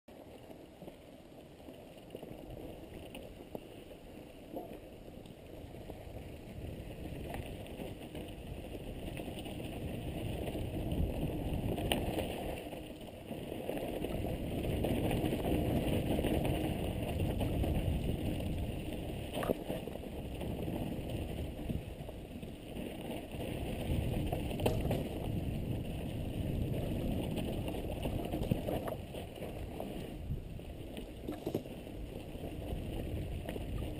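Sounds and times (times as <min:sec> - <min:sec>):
bike tyre noise on dirt: 0:00.1 - 0:33.9
wind on microphone: 0:05.6 - 0:12.7, 0:13.4 - 0:33.9
bike knocks and rattling: 0:24.1 - 0:29.1, 0:31.2 - 0:31.8.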